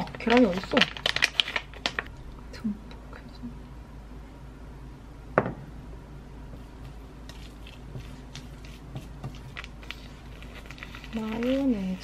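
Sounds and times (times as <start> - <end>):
clicks and rustles of food preparation: 0.0 - 2.1
plastic packet handled: 0.0 - 2.1, 7.3 - 12.0
low steady hum: 0.0 - 12.0.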